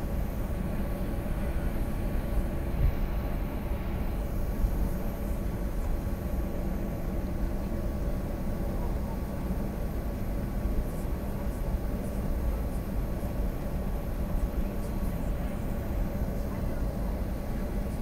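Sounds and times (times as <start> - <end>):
airliner cabin rumble: 0.0 - 18.0
faint steady hum: 0.0 - 18.0.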